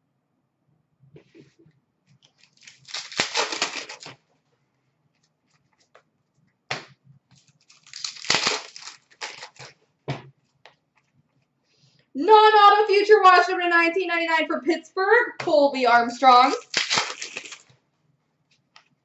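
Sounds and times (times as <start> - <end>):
foil wrapper crackling: 2.3 - 4.2, 7.4 - 9.8, 16.4 - 17.7.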